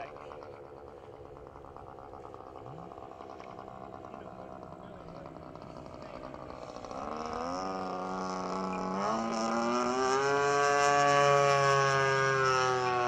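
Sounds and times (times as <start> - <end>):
airplane engine droning overhead: 0.0 - 13.0.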